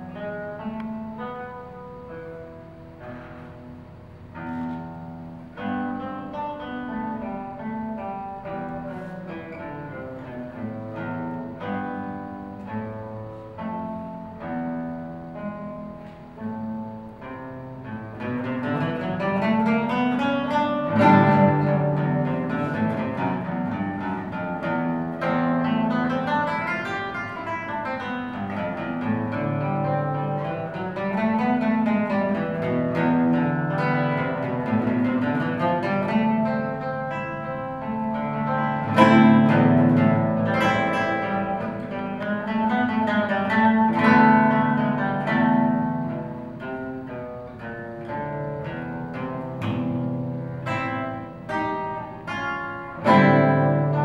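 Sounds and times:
classical guitar fingerstyle: 0:00.0 - 0:54.0.

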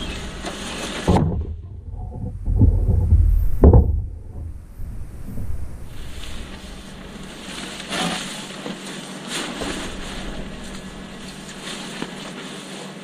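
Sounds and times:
faint steady hum: 0:00.0 - 0:13.0
nylon fabric rustling: 0:05.4 - 0:13.0.

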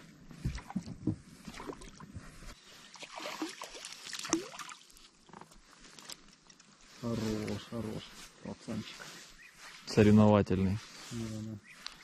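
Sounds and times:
fish splashing in water: 0:02.8 - 0:05.0.

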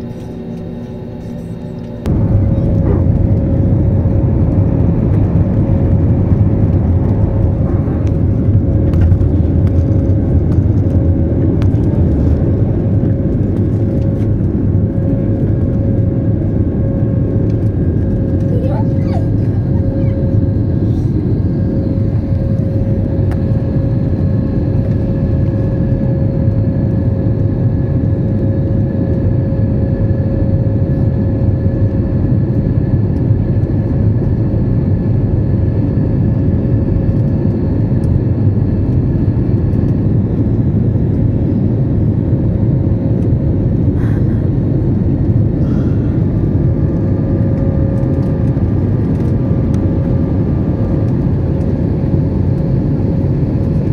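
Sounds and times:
faint steady whine: 0:00.0 - 0:30.8
jet engines and airflow rush: 0:00.0 - 0:53.9.

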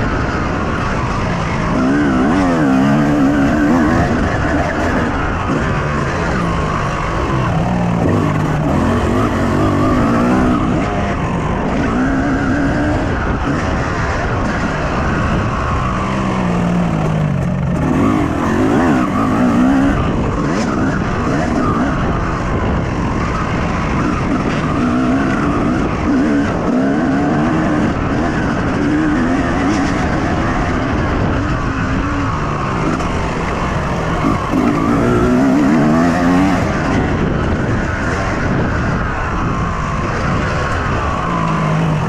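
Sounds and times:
motorcycle engine revving: 0:00.0 - 0:42.0.

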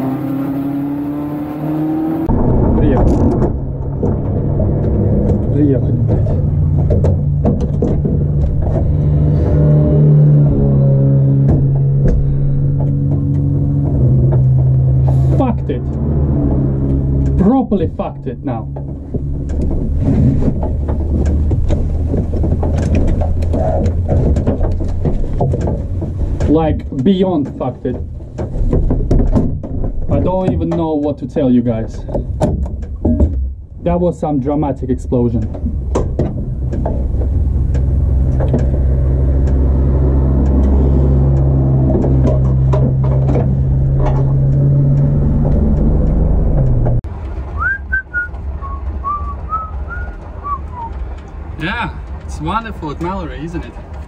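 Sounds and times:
sharp clicks and rattles: 0:02.3 - 0:09.6, 0:11.4 - 0:47.4
race car engine running: 0:35.0 - 0:47.3.

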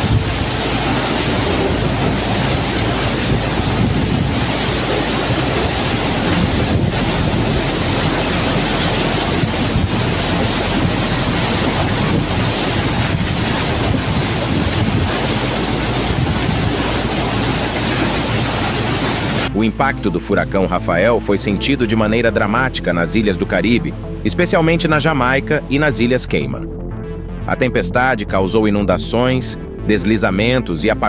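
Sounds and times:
wind-driven rain: 0:00.0 - 0:19.6
strong wind through palm trees: 0:00.0 - 0:19.7.

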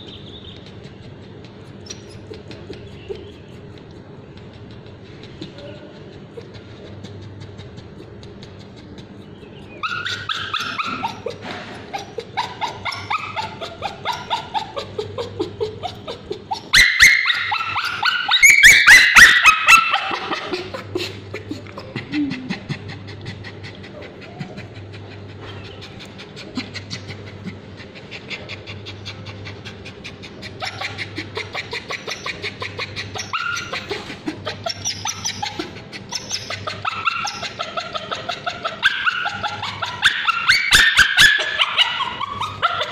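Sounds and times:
dog whimpering and screaming: 0:00.0 - 0:03.8, 0:08.6 - 0:22.7, 0:23.8 - 0:42.9.

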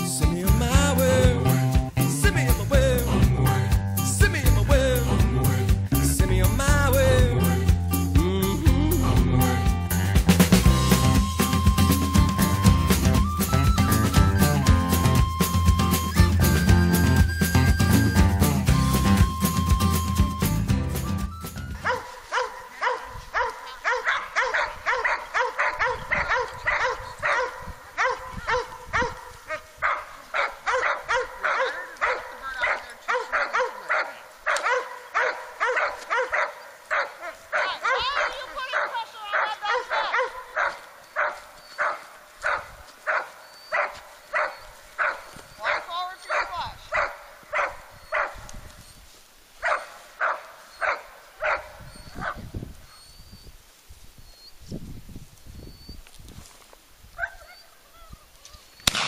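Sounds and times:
footsteps through grass: 0:20.5 - 0:27.5, 0:28.5 - 0:51.6, 0:53.6 - 0:57.3
dog yapping: 0:21.7 - 0:48.4, 0:49.6 - 0:52.4, 0:57.2 - 0:58.6.

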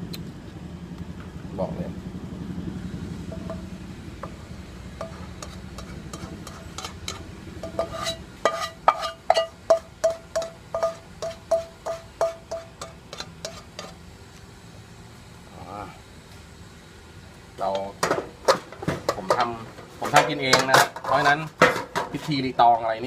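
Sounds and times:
spatula knocking and scraping wok: 0:03.3 - 0:14.0, 0:17.7 - 0:22.5.

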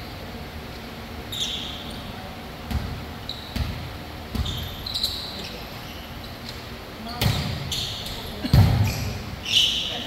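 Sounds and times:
sneakers squeaking on court: 0:01.2 - 0:10.0
ball bouncing on gym floor: 0:02.7 - 0:04.8, 0:07.0 - 0:09.4.

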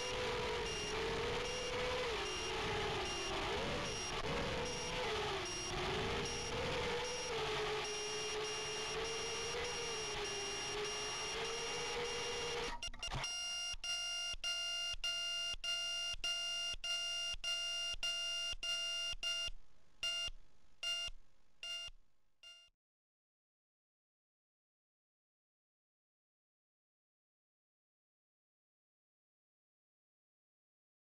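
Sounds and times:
drone motors whining: 0:00.0 - 0:13.3
buzzer beeping: 0:00.1 - 0:19.5, 0:21.7 - 0:22.7.

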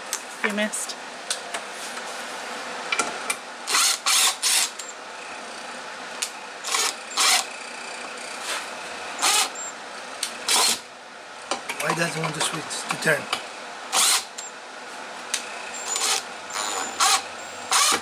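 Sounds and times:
impact driver bursts into wood: 0:03.7 - 0:04.8, 0:09.2 - 0:09.6, 0:10.5 - 0:10.8, 0:13.9 - 0:14.3, 0:15.9 - 0:18.0.

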